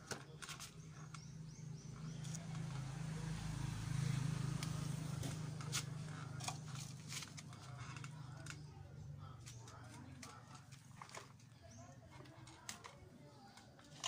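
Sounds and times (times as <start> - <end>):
plastic pots being handled: 0.0 - 2.8, 5.0 - 14.0
vehicle engine passing: 0.6 - 11.1.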